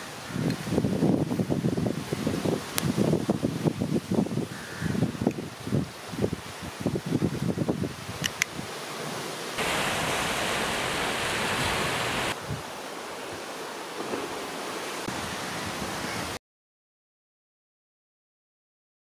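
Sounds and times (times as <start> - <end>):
wind: 0.0 - 16.4
sea surf: 8.8 - 16.4.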